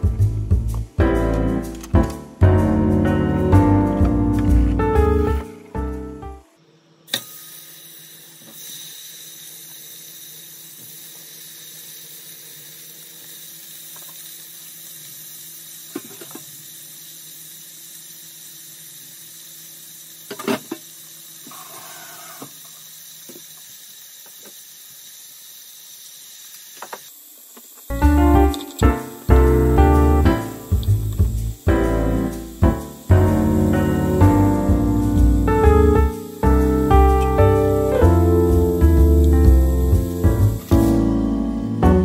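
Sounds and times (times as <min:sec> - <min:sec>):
beef sizzling in hot oil: 0:07.3 - 0:40.6.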